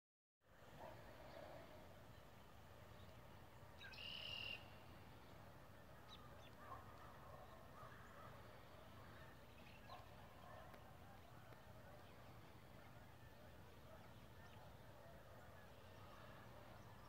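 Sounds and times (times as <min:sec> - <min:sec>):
short bird chirps: 0:03.8 - 0:04.7.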